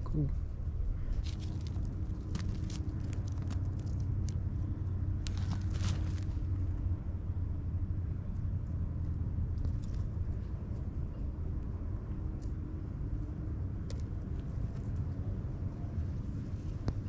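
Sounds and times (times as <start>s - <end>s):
steady low rumble: 0.0s - 17.0s
clicks and scrapes of rock digging: 1.1s - 4.6s, 5.2s - 6.4s.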